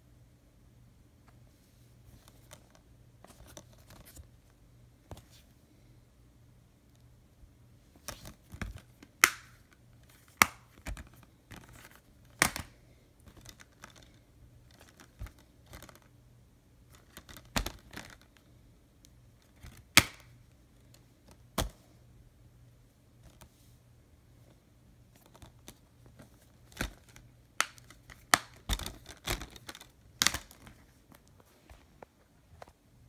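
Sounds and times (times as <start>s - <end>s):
plastic cases clicking and snapping: 8.0s - 16.1s, 16.9s - 18.4s, 19.4s - 20.4s, 26.5s - 31.3s.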